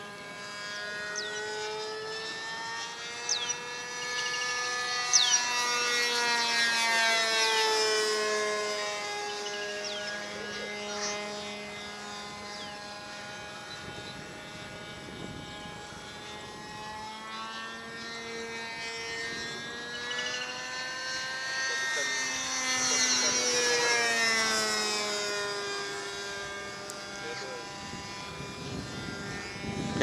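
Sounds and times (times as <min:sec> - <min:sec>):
model plane engine droning: 0:00.0 - 0:30.0.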